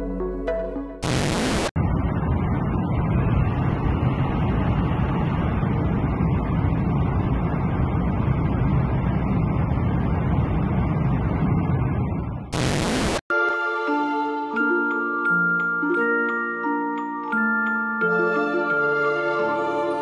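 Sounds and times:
jet engines rumbling: 1.7 - 13.1
rushing air: 1.7 - 13.1.

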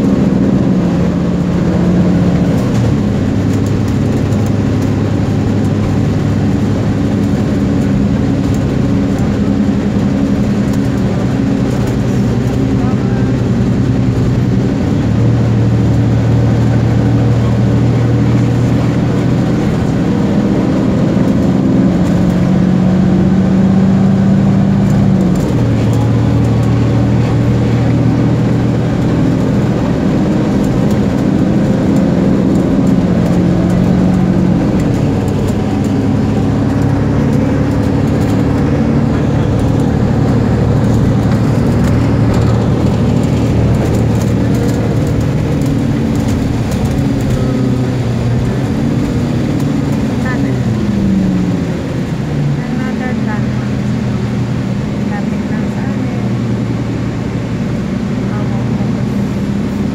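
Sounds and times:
vehicle engine hum: 0.0 - 59.9.

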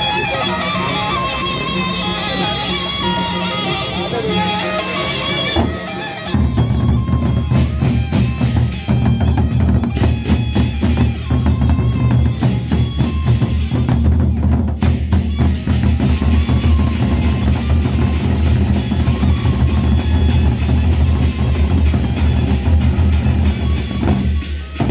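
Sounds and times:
barrel drums fast beat: 5.4 - 24.9.

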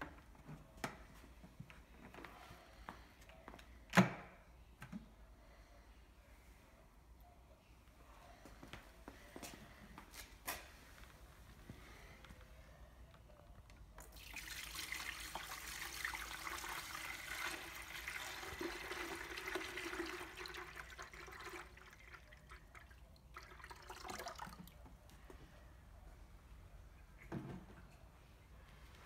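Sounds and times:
water pouring into plastic bowl: 14.0 - 24.8.

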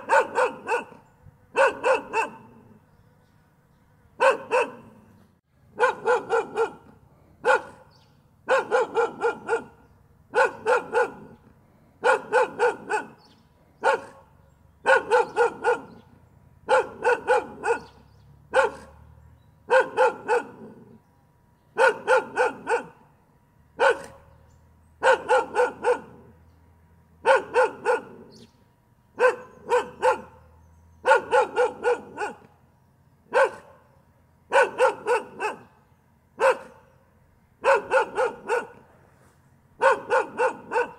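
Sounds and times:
dog barking: 0.0 - 2.8, 4.2 - 5.0, 5.8 - 11.4, 12.0 - 19.1, 19.7 - 21.0, 21.8 - 23.1, 23.8 - 24.3, 25.0 - 26.3, 27.2 - 28.4, 29.2 - 32.5, 33.3 - 33.9, 34.5 - 35.8, 36.4 - 37.0, 37.6 - 38.9, 39.8 - 40.9.

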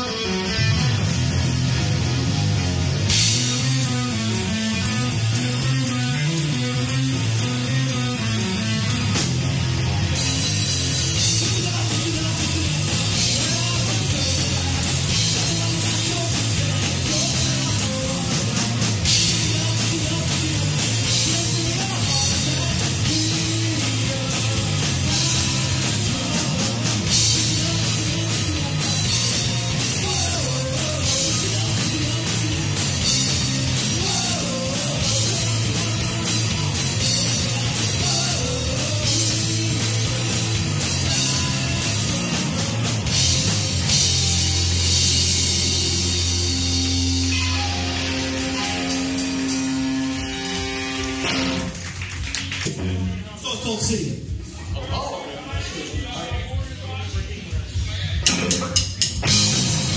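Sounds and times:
drum kit with crashing cymbals: 0.0 - 51.8, 57.7 - 59.9
electric guitar: 0.0 - 53.3, 58.2 - 59.9
electric bass: 0.0 - 54.8, 57.6 - 59.9
person singing: 11.1 - 42.8.

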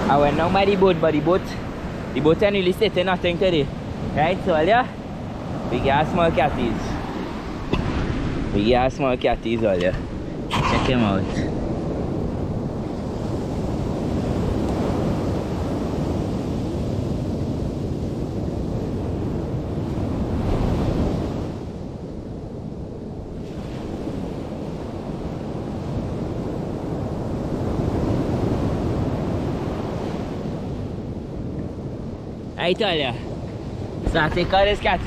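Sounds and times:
surf breaking on beach: 0.0 - 11.6
wind buffeting microphone: 0.0 - 35.0.

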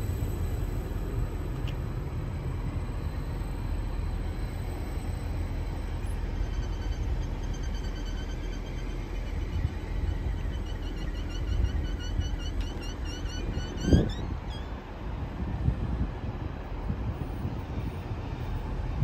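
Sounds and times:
train running gear rumble: 0.0 - 19.0
faint high squeaks: 6.1 - 14.8.

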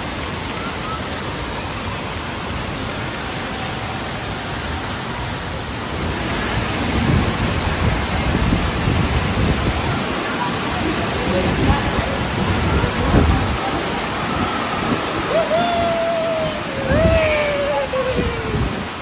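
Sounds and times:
splashing falling water: 0.0 - 19.0.

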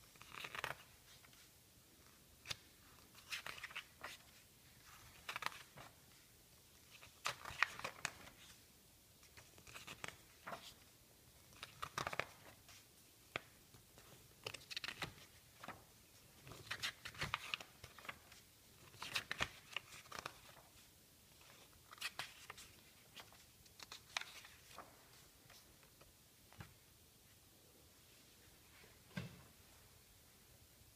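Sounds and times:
magazine pages turning: 0.1 - 1.5, 2.4 - 6.2, 6.8 - 8.6, 9.2 - 26.6.

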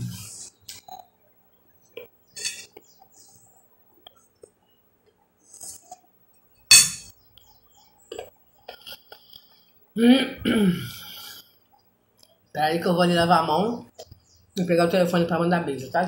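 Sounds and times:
metal spoon clinking on glass plate: 6.7 - 7.1.

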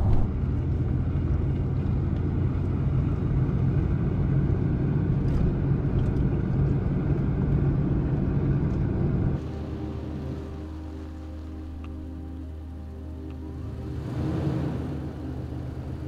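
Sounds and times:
tyre rumble on dirt road: 0.0 - 2.8
engine hum inside cab: 0.0 - 16.0.

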